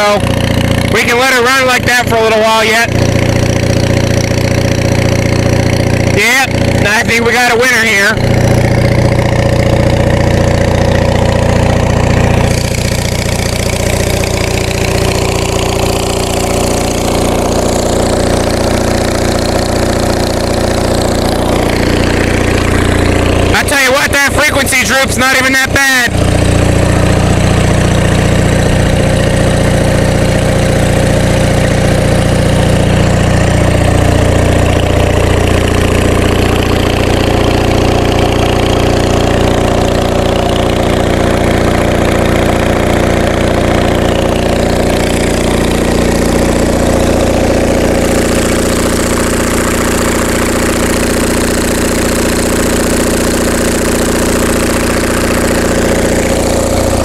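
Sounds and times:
diesel generator running: 0.0s - 57.0s.

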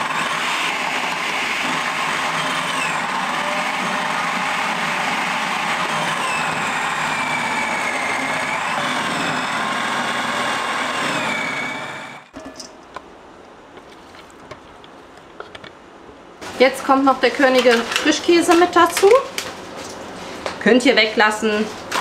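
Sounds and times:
food processor shredding carrots: 0.0s - 12.3s.

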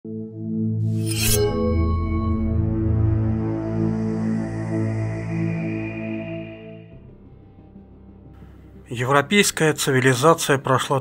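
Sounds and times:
ambient music low held tones: 0.1s - 11.0s.

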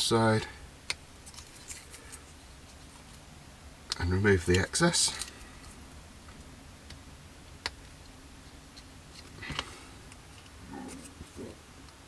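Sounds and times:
plastic handling noises: 1.2s - 3.2s.

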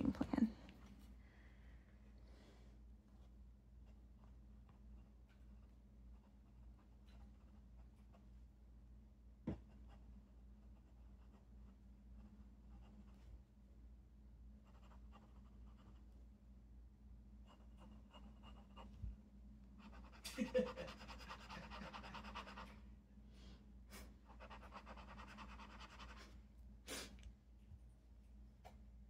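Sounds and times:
pen scratching on paper: 14.6s - 16.1s, 17.4s - 18.9s, 19.8s - 22.7s, 24.3s - 26.2s.

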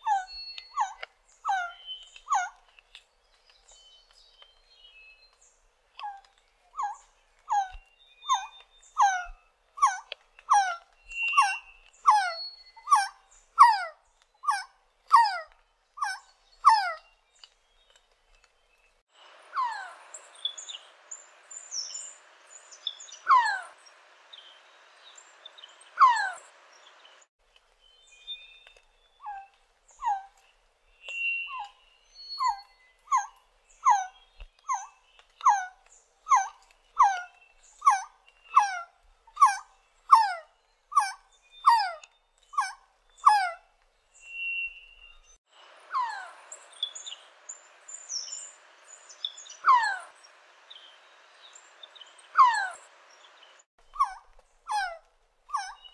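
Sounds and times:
bird whistling falling notes: 44.2s - 45.3s.

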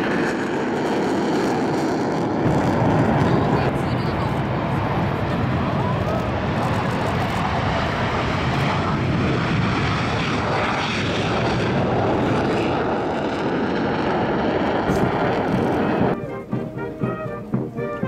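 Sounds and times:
jet engines roaring: 0.0s - 18.0s.

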